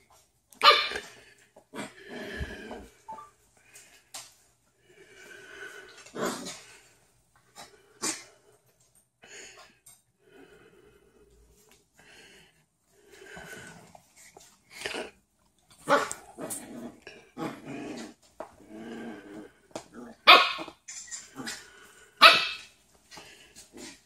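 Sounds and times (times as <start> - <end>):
puppy barking: 0.6 - 1.0, 20.2 - 20.7, 22.2 - 22.7
puppy growling: 5.9 - 6.8, 15.8 - 21.8.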